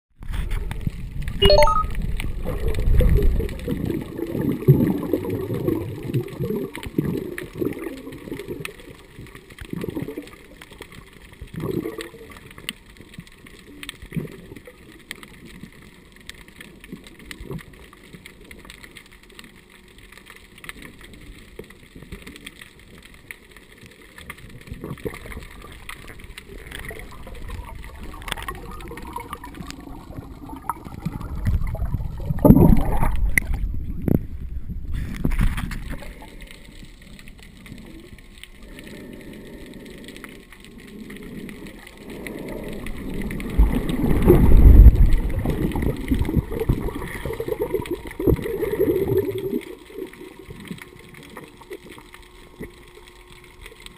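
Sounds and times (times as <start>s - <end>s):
bubbling: 0.2s - 53.9s
muffled underwater water sloshing: 0.2s - 53.9s.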